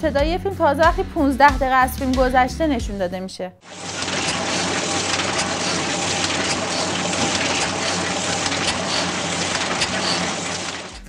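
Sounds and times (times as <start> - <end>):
printing press clatter: 3.7 - 11.0.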